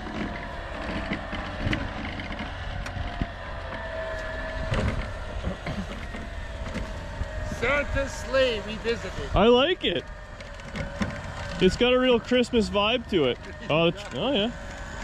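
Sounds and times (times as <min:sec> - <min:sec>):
metal scraping over snow: 0:00.0 - 0:15.0.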